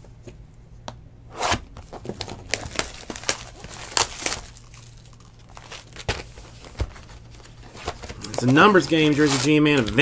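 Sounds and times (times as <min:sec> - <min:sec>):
wrapper tearing and crinkling: 0:02.0 - 0:10.0.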